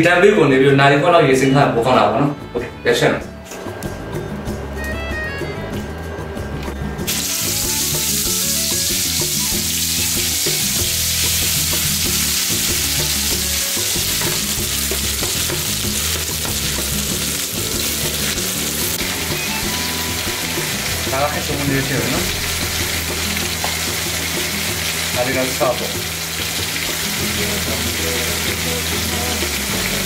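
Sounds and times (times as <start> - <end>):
background music: 0.0 - 30.0
paste sizzling in hot oil: 7.1 - 19.6, 20.2 - 30.0.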